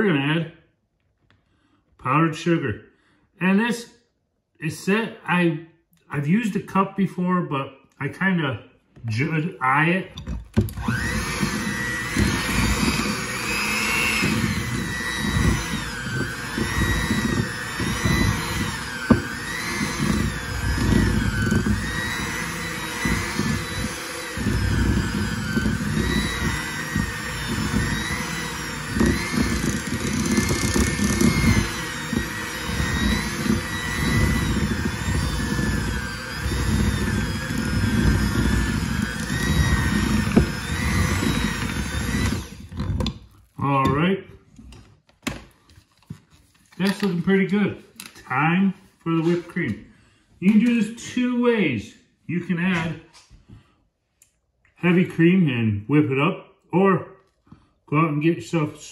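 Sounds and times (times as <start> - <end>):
electric hand mixer whining: 10.2 - 43.3.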